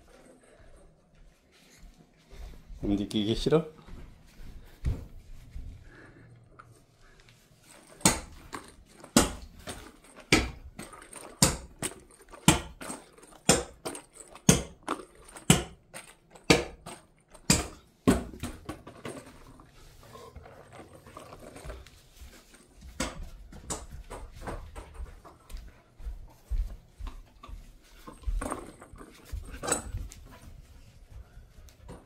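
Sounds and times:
soft scuffling: 0:00.0 - 0:11.2, 0:19.1 - 0:32.0
rubber ball bouncing on floor: 0:08.0 - 0:10.8, 0:11.4 - 0:12.8.

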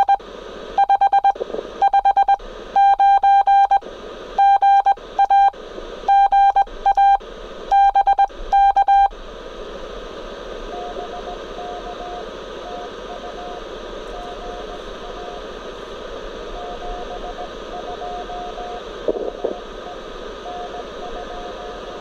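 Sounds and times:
morse code tone: 0:00.0 - 0:00.2, 0:00.8 - 0:03.8, 0:04.4 - 0:05.5, 0:06.1 - 0:09.1, 0:10.7 - 0:15.4, 0:16.5 - 0:18.8, 0:20.4 - 0:22.0
radio receiver hiss: 0:00.0 - 0:22.0.

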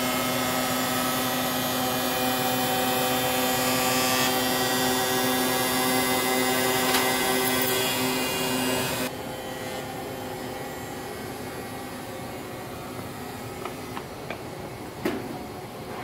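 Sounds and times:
skate sharpener whining and grinding: 0:00.0 - 0:14.1.

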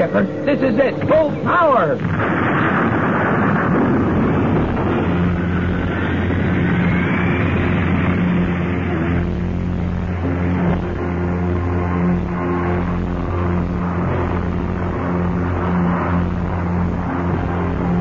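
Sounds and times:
rocket engine roar with whine: 0:00.0 - 0:18.0
sustained music chords: 0:00.0 - 0:18.0.

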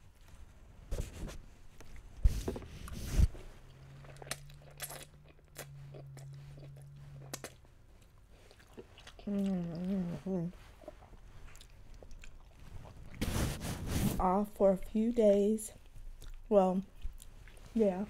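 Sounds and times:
slurping and chewing noodles: 0:02.8 - 0:14.3
person humming mmm: 0:09.2 - 0:10.6.

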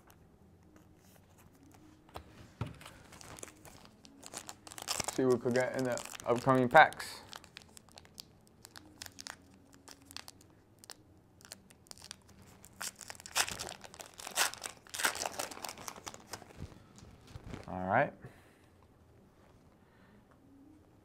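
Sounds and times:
wrapper crinkling and tearing: 0:02.8 - 0:17.7.

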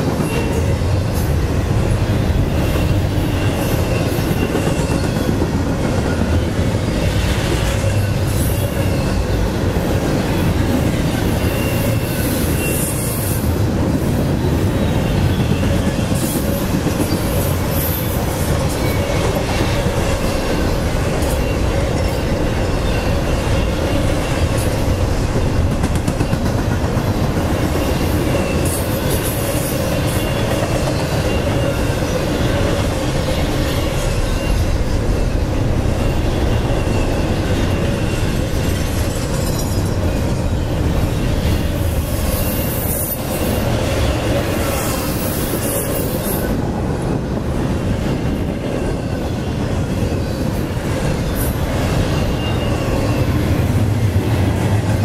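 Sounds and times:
train wheels on rails: 0:00.0 - 0:55.0
high wheel squeal: 0:02.5 - 0:05.3, 0:11.2 - 0:13.5, 0:27.6 - 0:40.6, 0:41.2 - 0:46.6, 0:51.1 - 0:54.0
clatter from freight cars: 0:14.4 - 0:32.0.

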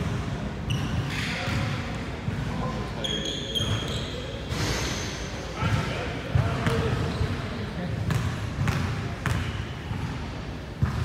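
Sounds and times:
short high squeak: 0:03.1 - 0:05.2
basketball bouncing on wooden floor: 0:10.8 - 0:11.0.

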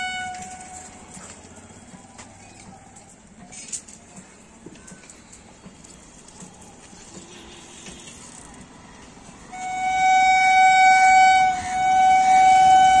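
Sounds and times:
train horn blast: 0:00.0 - 0:01.0, 0:09.5 - 0:13.0.

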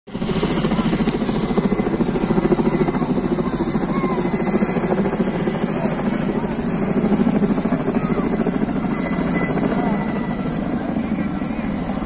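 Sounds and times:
helicopter rotor chopping: 0:00.1 - 0:12.0.

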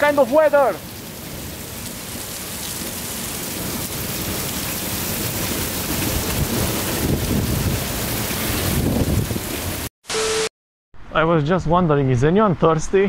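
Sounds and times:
rain pouring: 0:00.0 - 0:09.9.

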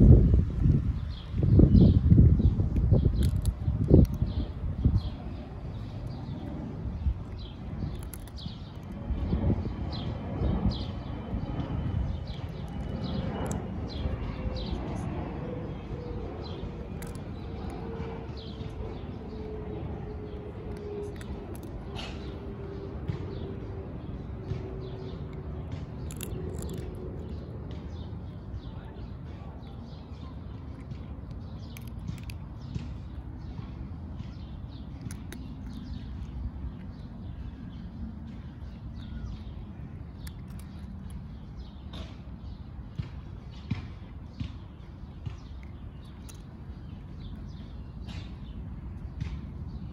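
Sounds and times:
birds chirping: 0:00.0 - 0:49.9
low outdoor rumble: 0:00.0 - 0:49.9
cat crunching dry kibble: 0:00.2 - 0:14.7, 0:16.0 - 0:29.2, 0:29.8 - 0:42.3, 0:45.0 - 0:49.0
bird chirping: 0:34.2 - 0:43.8.

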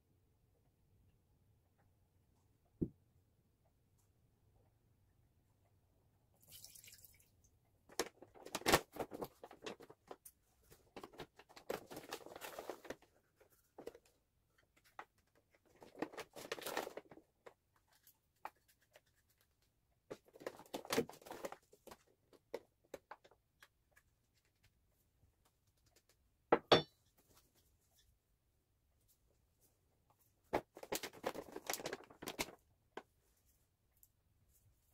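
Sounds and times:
sugar pouring: 0:06.4 - 0:07.3
wine pouring into a pot: 0:06.4 - 0:07.3
plastic bag rustling: 0:30.6 - 0:32.6.

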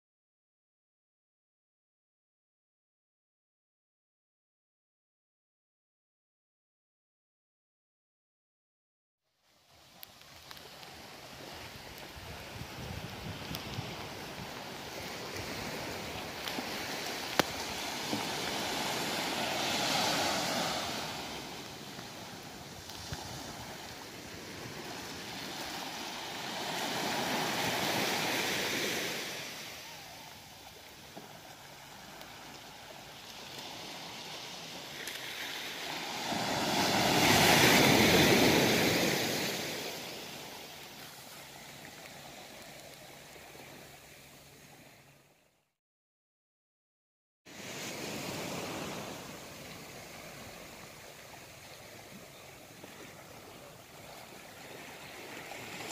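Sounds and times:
waves washing onto beach: 0:09.5 - 0:45.2, 0:47.5 - 0:55.9.

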